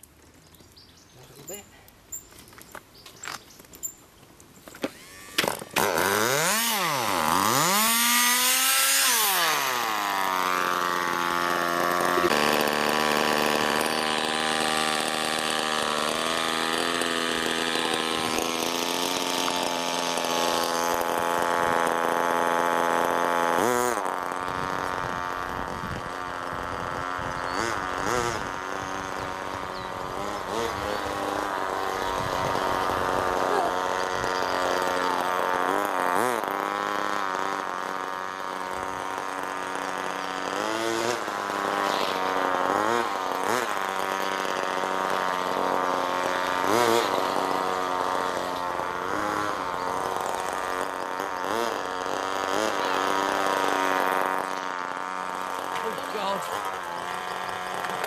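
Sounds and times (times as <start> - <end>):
model engine revving and buzzing: 4.6 - 58.0
starter clicks: 55.5 - 58.0.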